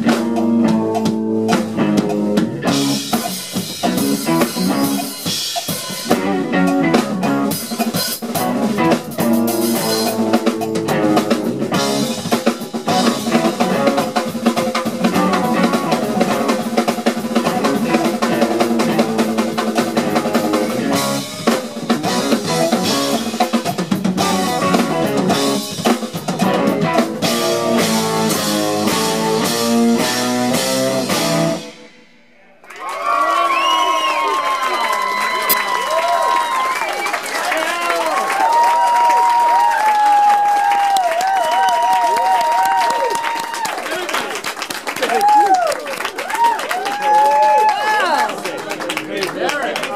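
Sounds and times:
electric guitar: 0.0 - 32.1
drum kit: 0.0 - 32.5
funk band playing: 0.0 - 32.5, 37.4 - 49.8
bass: 0.0 - 32.6.

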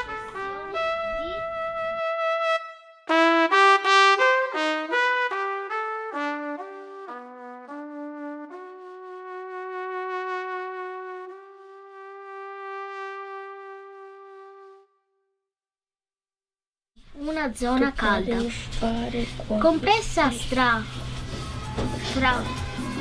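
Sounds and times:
title music melody: 0.0 - 14.9.

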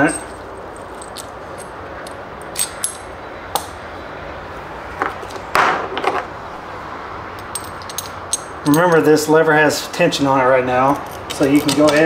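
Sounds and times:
rustling handling noise: 0.0 - 3.0
small metal parts clinking: 0.0 - 3.7, 7.4 - 9.3, 10.8 - 12.0.

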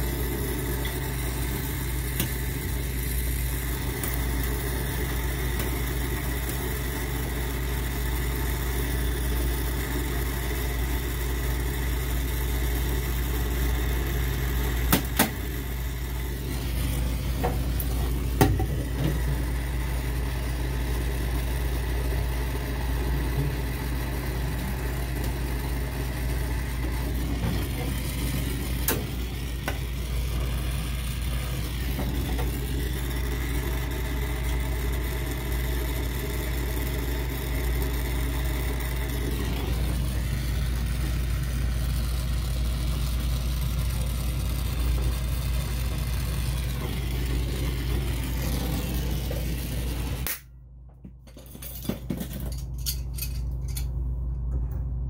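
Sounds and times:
torch flame rushing: 23.6 - 42.3, 43.8 - 50.4.

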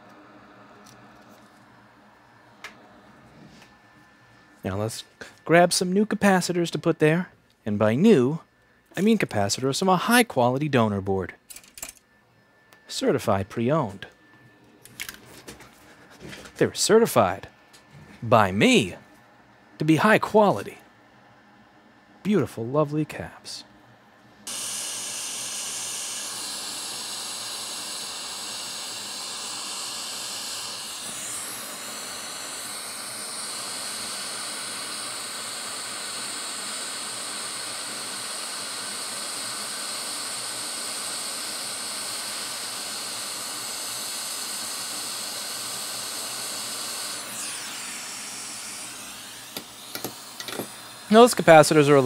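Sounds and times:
hot air station hissing: 24.4 - 52.0.

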